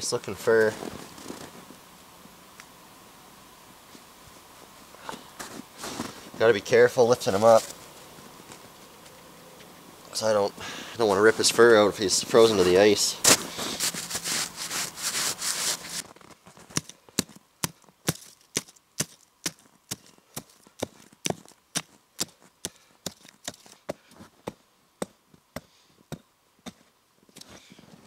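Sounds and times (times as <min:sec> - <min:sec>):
close rustling: 0:11.0 - 0:16.8.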